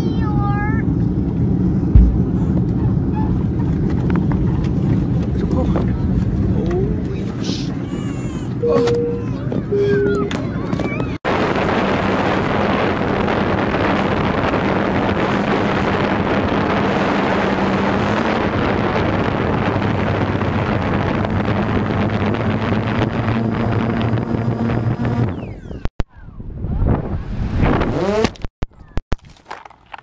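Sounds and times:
wind noise on microphone: 0.8s - 29.0s
drone propellers buzzing: 11.3s - 25.9s.

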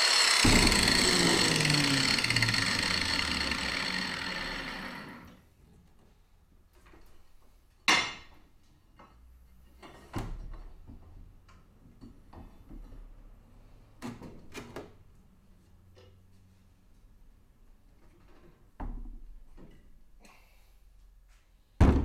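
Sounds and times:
angle grinder whine winding down: 0.0s - 5.3s.

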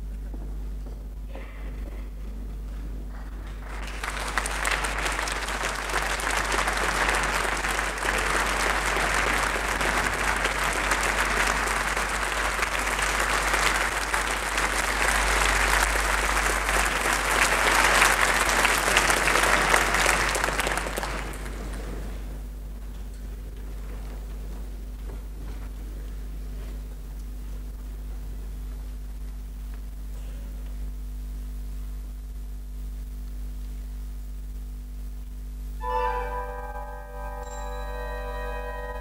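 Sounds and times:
steady low hum: 0.0s - 39.0s
audience applauding: 3.1s - 22.4s.

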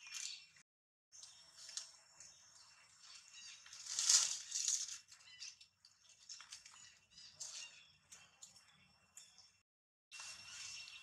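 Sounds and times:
leaves and branches rustling: 2.9s - 7.8s.

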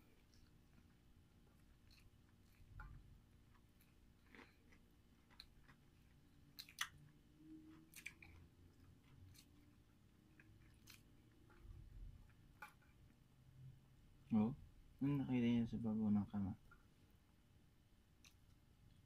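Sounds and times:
chewing: 0.0s - 13.2s.

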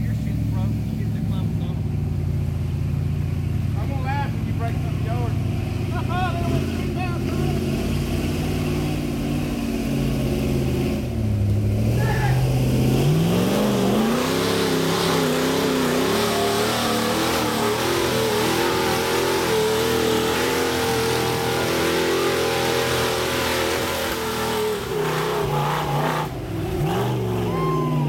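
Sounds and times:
engine revving under load: 0.0s - 28.0s.

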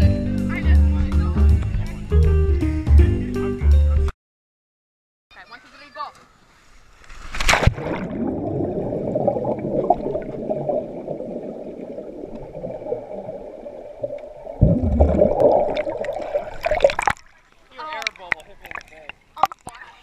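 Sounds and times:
underwater churning and bubbling: 7.7s - 19.7s.

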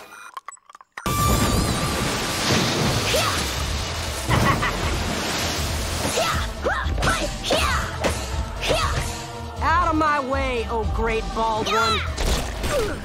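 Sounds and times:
heavy rain: 1.5s - 6.6s.

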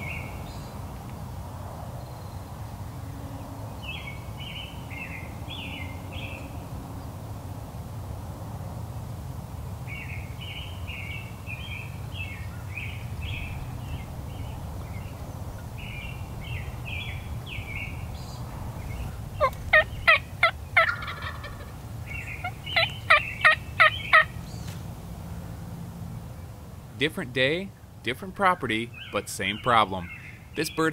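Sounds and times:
wild turkey calling: 11.5s - 24.4s, 28.3s - 30.9s.

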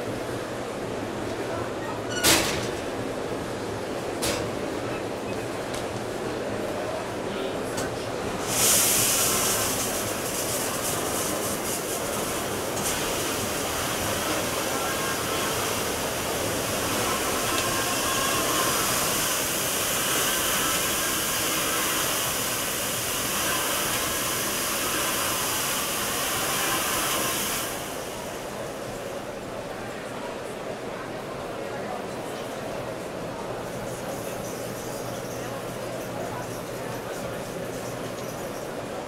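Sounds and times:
dishwasher water spray hissing: 8.4s - 28.5s.

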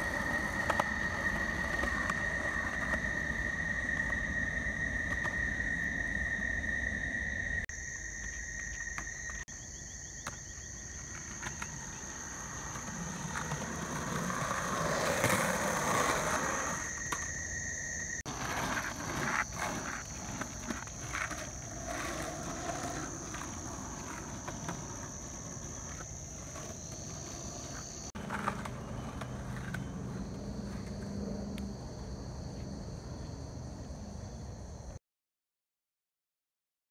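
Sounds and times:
skateboard wheels rolling on pavement: 0.0s - 35.0s
high-pitched insect drone: 0.1s - 28.1s
skateboard clicks: 18.3s - 31.7s.

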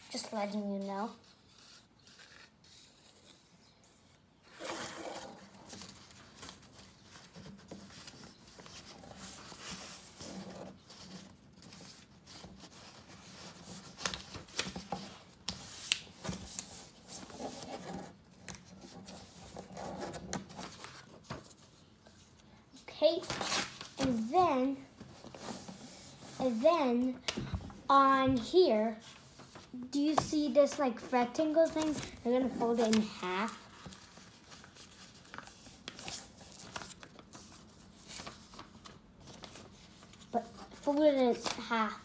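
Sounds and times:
paper folding and rustling: 0.0s - 27.8s, 28.7s - 42.0s
paper scraping on tabletop: 4.5s - 5.9s
sharp paper crackles: 23.2s - 25.5s, 31.6s - 42.0s.

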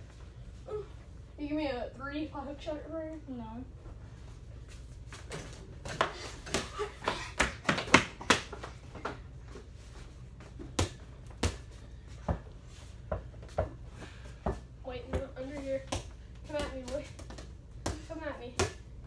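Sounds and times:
basketball bouncing on hard floor: 10.6s - 12.5s, 14.4s - 18.8s.

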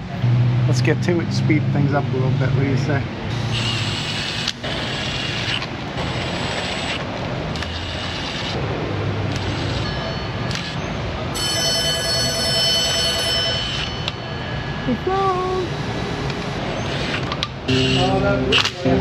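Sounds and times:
power ratchet whirring: 3.3s - 8.6s, 9.3s - 10.8s, 15.8s - 18.7s.

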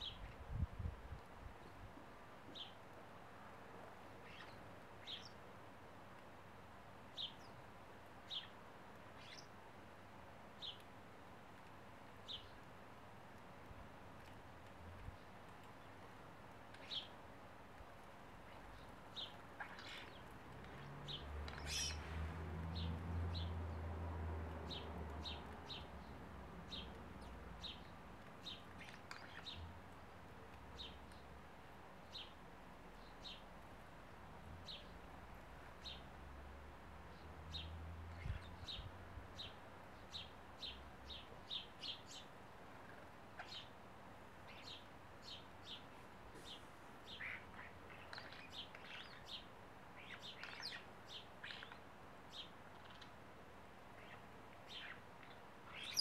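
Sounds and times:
birds chirping: 4.0s - 5.4s, 18.0s - 33.7s, 34.4s - 36.4s, 37.0s - 43.8s, 44.4s - 53.2s, 53.8s - 56.0s.

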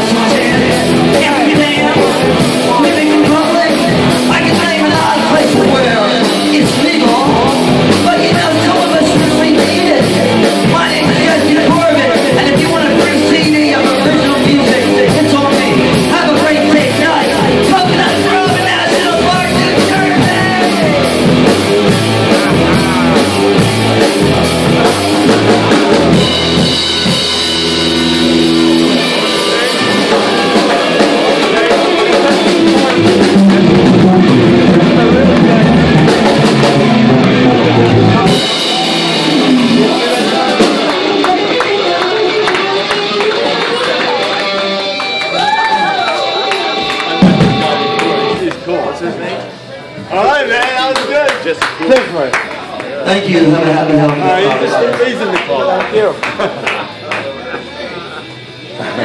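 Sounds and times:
drum kit beat: 0.0s - 48.7s
electric guitar: 0.0s - 48.7s.

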